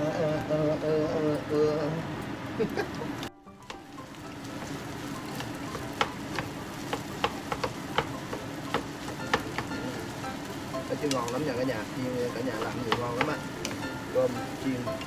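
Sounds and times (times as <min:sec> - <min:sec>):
rice sizzling in a pan: 0:00.0 - 0:15.0
wooden spatula clacking on pan: 0:03.6 - 0:15.0.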